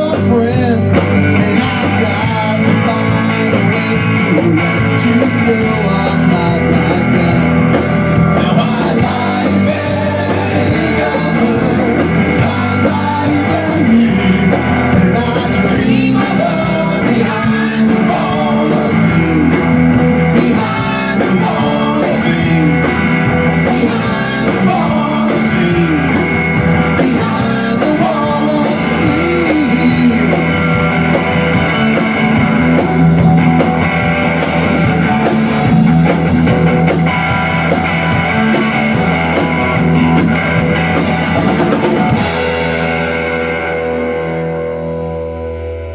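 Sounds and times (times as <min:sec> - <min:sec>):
rock band playing live: 0:00.0 - 0:45.9.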